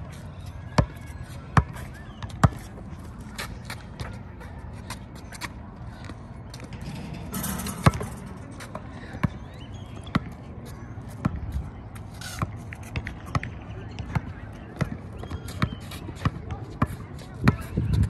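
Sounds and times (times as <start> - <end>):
basketball bouncing on concrete: 6.7 - 10.4.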